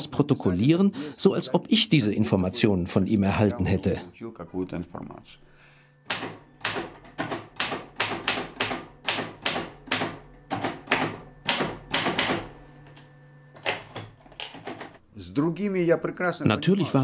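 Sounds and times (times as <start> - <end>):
typewriter keys striking: 6.1 - 12.5, 13.6 - 15.0.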